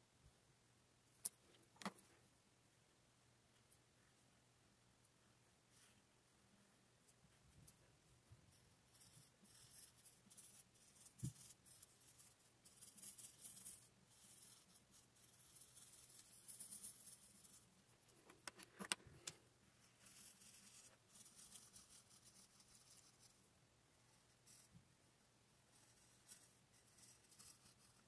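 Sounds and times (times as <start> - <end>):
marker scratching on paper: 25.7 - 28.0.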